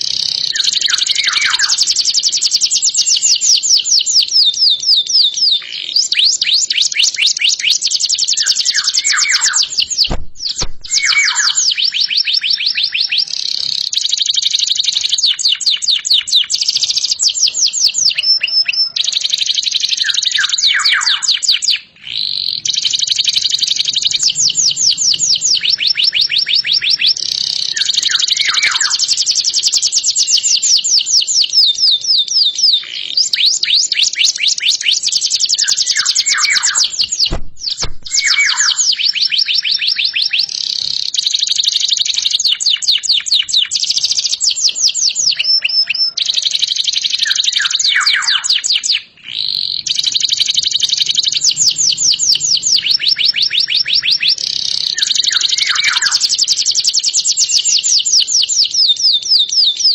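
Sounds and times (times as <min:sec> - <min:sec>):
canary singing trills: 0:00.0 - 0:59.9
sharp clicks: 0:09.3 - 0:11.5, 0:36.8 - 0:38.7.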